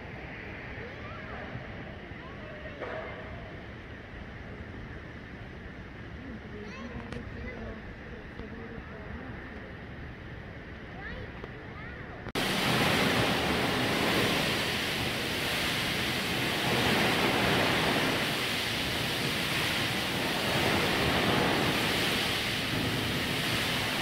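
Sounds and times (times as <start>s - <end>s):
rush of falling water: 12.3s - 24.0s.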